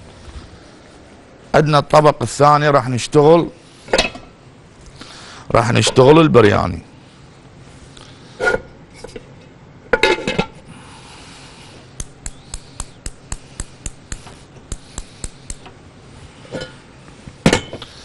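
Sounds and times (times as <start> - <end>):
sharp evenly spaced clicks: 12.0 - 15.8.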